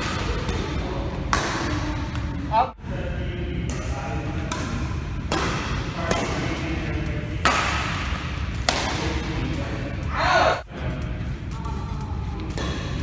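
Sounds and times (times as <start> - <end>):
racket striking shuttlecock: 0.0 - 2.2, 3.7 - 6.6, 7.3 - 9.2, 12.5 - 13.0.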